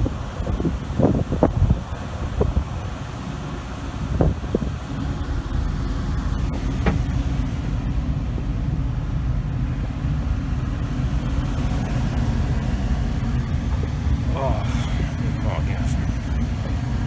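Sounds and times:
wind buffeting microphone: 0:00.0 - 0:08.5
ship engine low rumble: 0:00.0 - 0:17.0.

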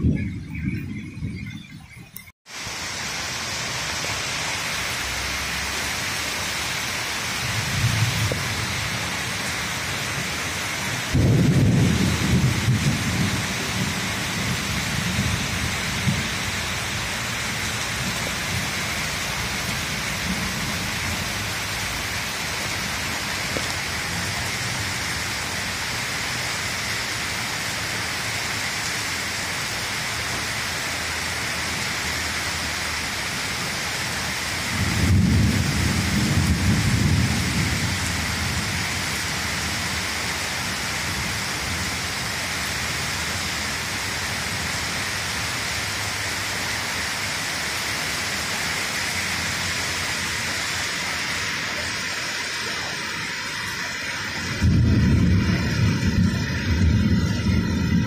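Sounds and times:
thunder rumbling: 0:00.0 - 0:01.8, 0:07.3 - 0:27.1, 0:34.3 - 0:42.8, 0:49.2 - 0:58.0
steady rain: 0:02.5 - 0:58.0.

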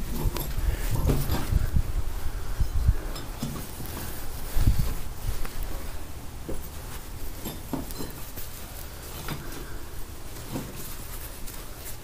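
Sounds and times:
microphone handling rumble: 0:00.0 - 0:07.2.

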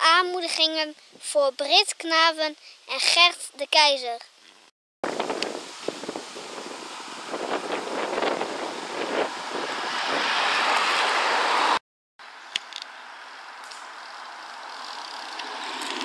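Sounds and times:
car passing on a road: 0:06.3 - 0:16.0
faint car approaching: 0:06.9 - 0:16.0.

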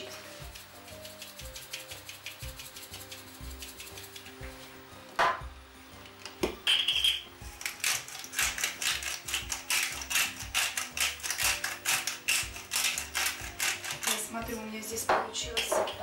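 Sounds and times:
pepper mill grinding clicks: 0:06.2 - 0:14.3.

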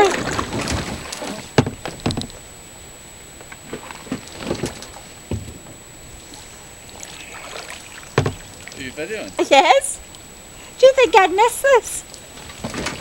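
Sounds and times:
water splashes: 0:00.0 - 0:01.9, 0:06.2 - 0:09.4
kayak hull knocking: 0:01.6 - 0:02.4, 0:05.2 - 0:05.8, 0:08.0 - 0:08.5.

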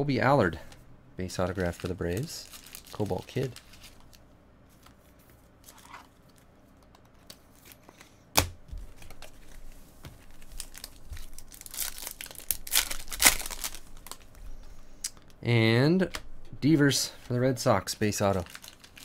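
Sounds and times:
wrapper crinkling: 0:01.3 - 0:04.2, 0:08.9 - 0:14.4, 0:18.1 - 0:19.0
foil pack tearing: 0:10.5 - 0:14.2, 0:18.4 - 0:19.0.

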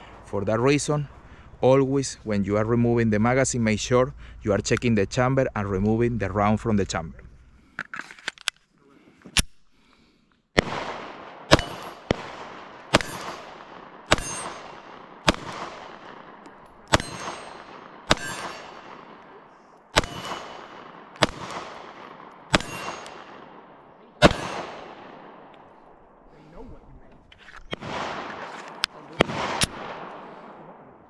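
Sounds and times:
pistol shots with echo: 0:10.6 - 0:26.2, 0:27.7 - 0:31.0.

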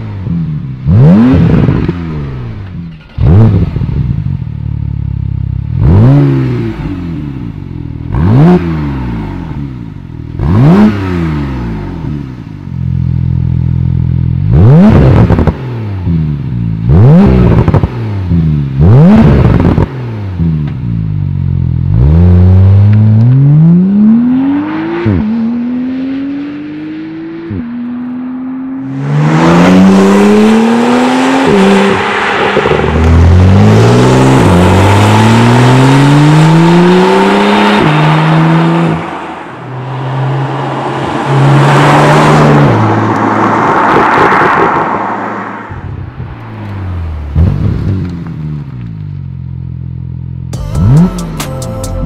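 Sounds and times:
car engine revving: 0:00.0 - 0:51.4
car pulling away hard: 0:28.8 - 0:45.9
exhaust crackling: 0:28.8 - 0:51.2.

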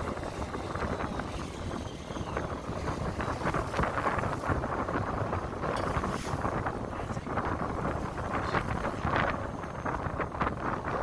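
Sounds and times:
waves splashing against boat hull: 0:00.0 - 0:09.5
wind buffeting microphone: 0:00.0 - 0:11.0.

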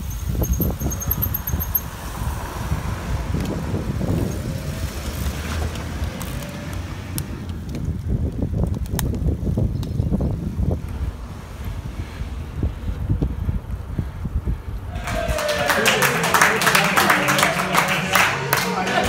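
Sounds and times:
wind buffeting the microphone: 0:00.0 - 0:15.6
bicycle tyres on pavement: 0:00.0 - 0:16.2.

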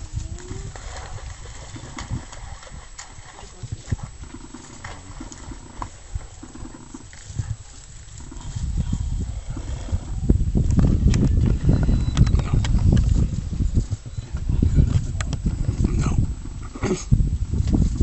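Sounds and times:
low rumbling noise: 0:00.0 - 0:18.0
wolves growling and snarling: 0:04.0 - 0:10.2.

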